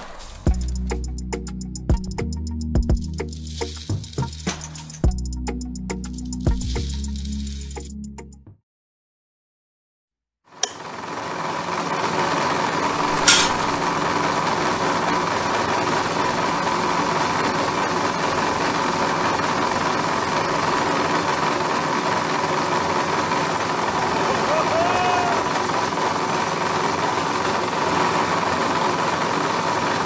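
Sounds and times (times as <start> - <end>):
switch click: 10.6 - 10.9, 13.0 - 13.8
brief sharp sound: 13.0 - 13.9.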